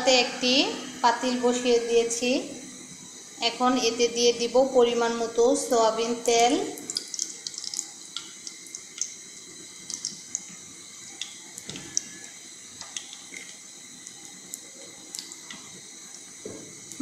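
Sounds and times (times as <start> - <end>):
oil ticking and crackling: 6.2 - 17.0.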